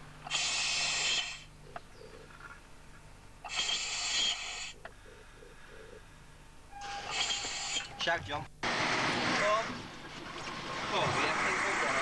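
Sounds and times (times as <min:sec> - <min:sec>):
breathing through face mask: 0:00.2 - 0:01.5, 0:03.4 - 0:05.9, 0:07.0 - 0:08.0.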